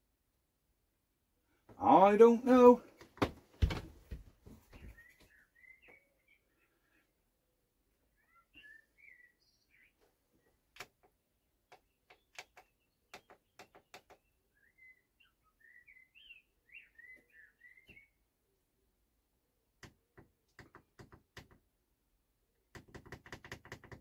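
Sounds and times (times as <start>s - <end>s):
small birds chirping: 4.6s - 18.7s.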